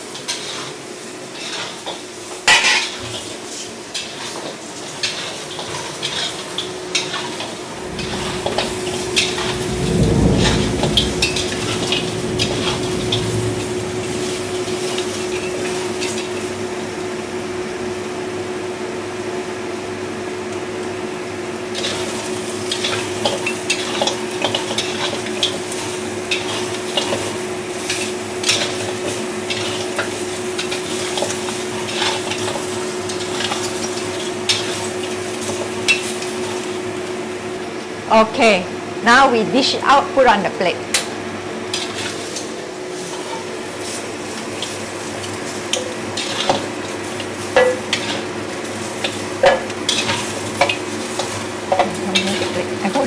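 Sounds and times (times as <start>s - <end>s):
food sizzling: 0.0s - 53.0s
metal spatula scraping a wok: 0.1s - 9.8s, 21.7s - 36.3s, 41.7s - 53.0s
steady hum: 6.6s - 18.9s.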